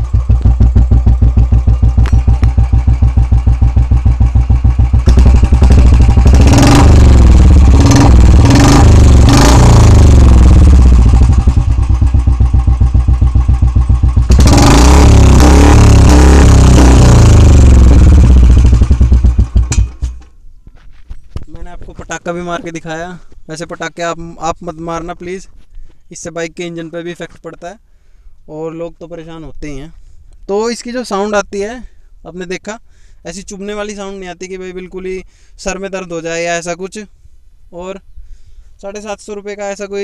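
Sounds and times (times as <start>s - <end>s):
motorcycle engine idling and revving: 0.0s - 20.3s.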